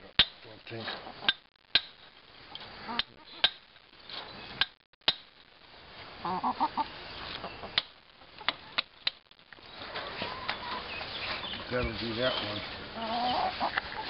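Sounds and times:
hammer striking steel stake: 0:00.2 - 0:00.4, 0:01.3 - 0:02.0, 0:04.6 - 0:05.3
hens clucking: 0:00.7 - 0:01.4, 0:02.5 - 0:04.7, 0:06.0 - 0:14.0.

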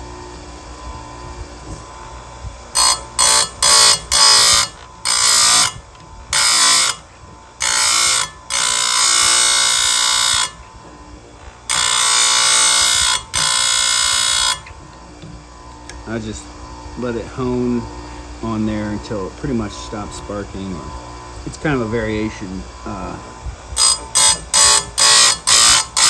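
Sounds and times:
grinder motor hum: 0:00.0 - 0:26.0
grinding wheel on chain tooth: 0:02.7 - 0:10.6, 0:11.6 - 0:14.7, 0:23.8 - 0:26.0.

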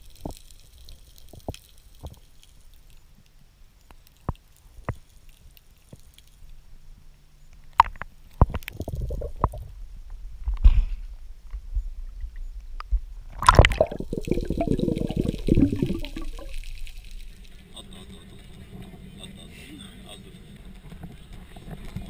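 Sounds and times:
water bubbling: 0:07.8 - 0:09.7, 0:13.3 - 0:18.0
water sloshing and gurgling: 0:07.8 - 0:09.8, 0:13.2 - 0:17.5
water splash: 0:13.3 - 0:17.3.

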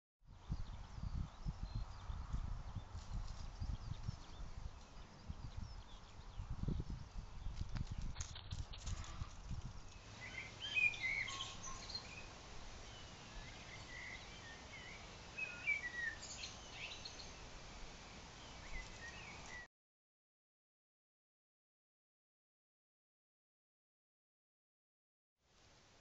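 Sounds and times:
small birds singing and chirping: 0:00.3 - 0:08.2, 0:09.8 - 0:19.7
wind rumble on microphone: 0:00.3 - 0:14.9.

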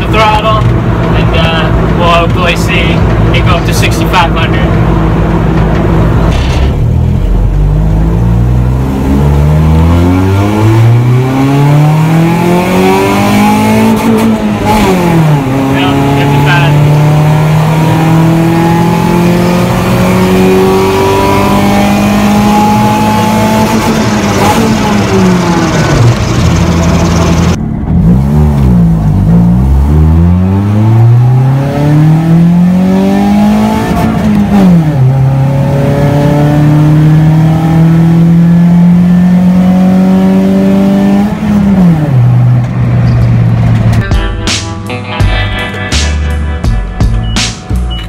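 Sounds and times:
car engine revving hard: 0:06.8 - 0:43.6.

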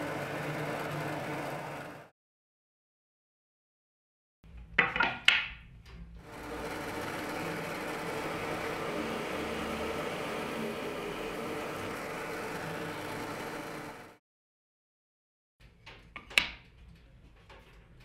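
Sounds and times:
drill press boring into wood: 0:06.2 - 0:14.2.

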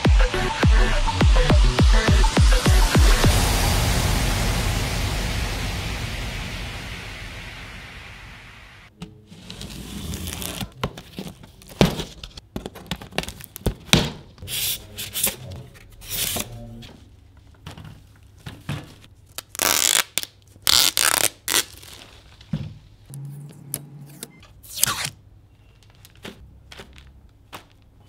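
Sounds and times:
blade slitting packing tape: 0:19.3 - 0:22.0, 0:24.6 - 0:25.2
tape being peeled off: 0:19.3 - 0:22.3, 0:23.1 - 0:25.2.

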